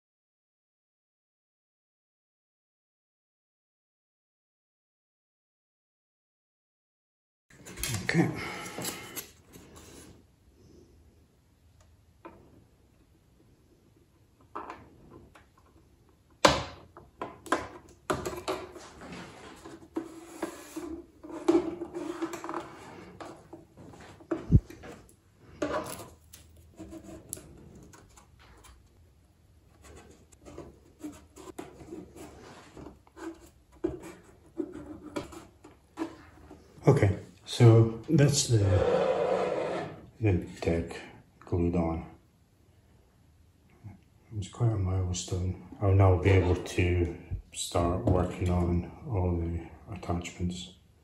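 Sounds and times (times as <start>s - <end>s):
plastic rubbing scraping and clicking: 16.9s - 29.0s, 29.6s - 36.7s.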